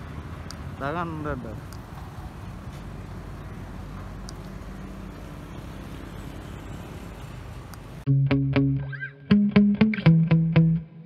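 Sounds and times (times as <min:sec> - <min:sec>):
vehicle road noise and engine hum: 0:00.0 - 0:08.1
distorted electric guitar rock music: 0:08.1 - 0:11.0.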